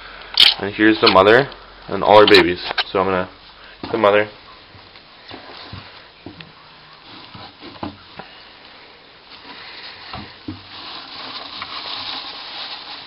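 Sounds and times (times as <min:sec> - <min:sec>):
shredded paper rustling: 0:09.3 - 0:13.0.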